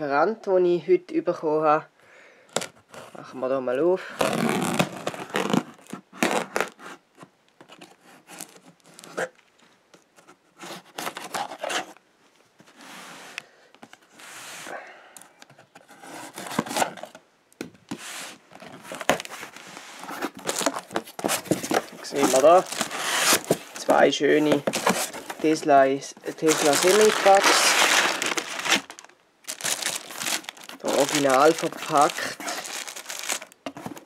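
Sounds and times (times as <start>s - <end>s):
packing tape tearing: 4.2s - 6.9s, 10.6s - 12.0s, 16.0s - 17.2s, 18.6s - 25.6s, 26.3s - 34.0s
cardboard flaps scraping: 17.9s - 34.0s.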